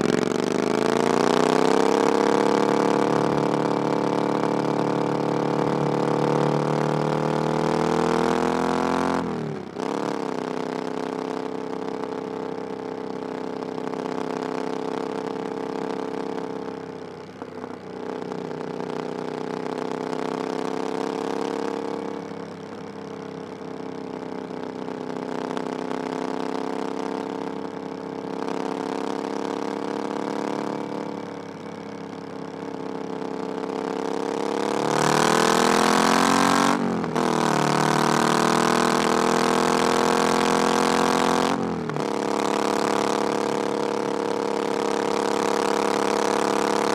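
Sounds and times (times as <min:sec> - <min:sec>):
motorcycle engine revving: 0:00.0 - 0:46.9.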